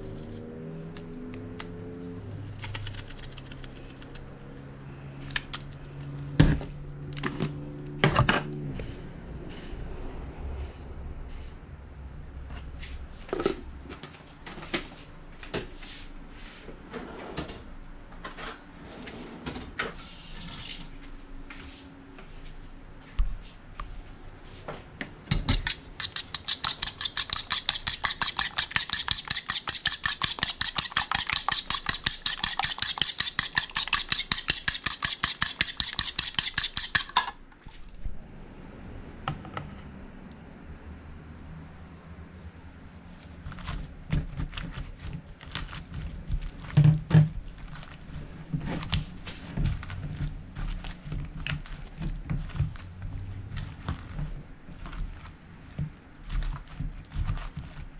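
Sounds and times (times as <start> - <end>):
fork whisking in plastic bowl: 1.9 - 4.4, 25.3 - 37.3, 43.2 - 57.9.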